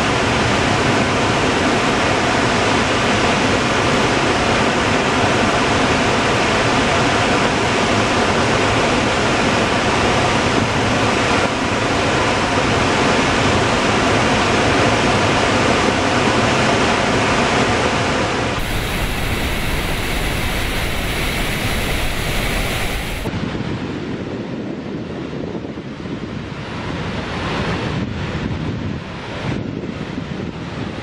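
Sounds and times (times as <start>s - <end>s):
water rushing from dam spillway: 0.0s - 23.3s.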